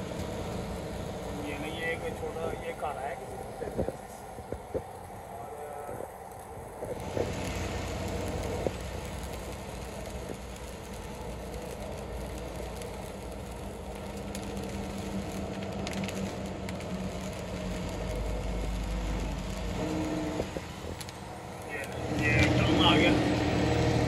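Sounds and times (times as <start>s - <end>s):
vehicle engine hum: 0.0s - 24.0s
tyre noise on wet road: 6.0s - 24.0s.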